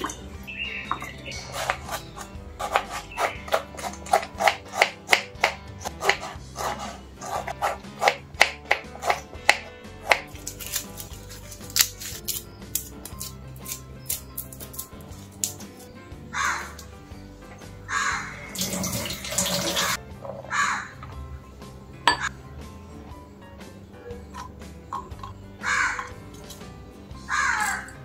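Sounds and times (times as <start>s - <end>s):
knife striking wooden chopping board: 2.6s - 10.8s.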